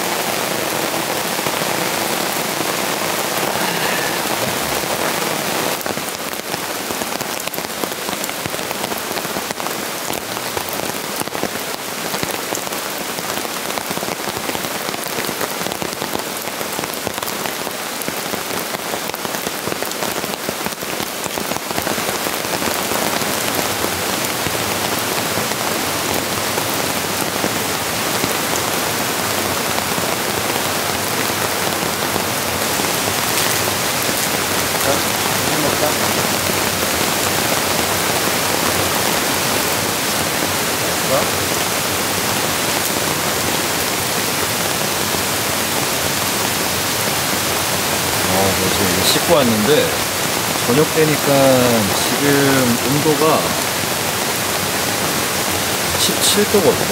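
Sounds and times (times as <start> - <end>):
steady rain falling: 0.0 - 56.9.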